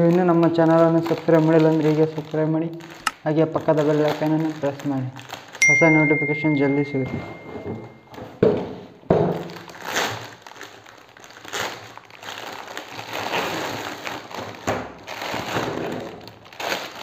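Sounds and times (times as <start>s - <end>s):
plastic bag crinkling: 0.0s - 5.6s, 9.3s - 17.0s.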